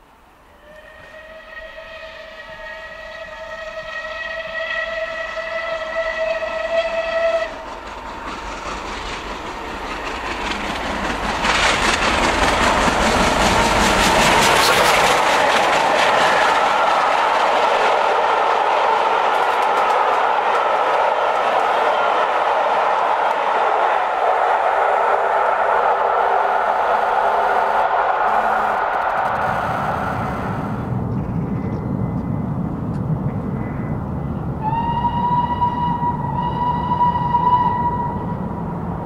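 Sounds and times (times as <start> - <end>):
train passing at speed: 0.0 - 39.0
steam locomotive whistle: 0.5 - 7.6, 25.8 - 30.9, 34.6 - 38.4
rail clatter: 7.5 - 29.2.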